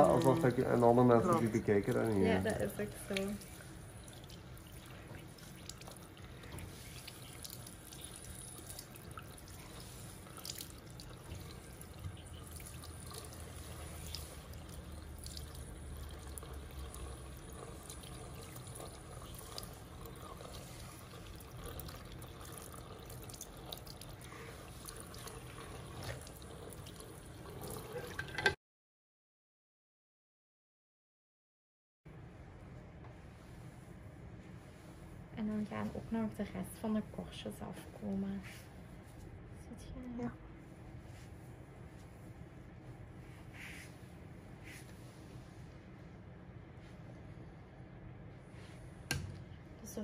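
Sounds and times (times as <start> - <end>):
water dripping: 0.0 - 28.5
shower water splashing into basin: 0.0 - 28.6.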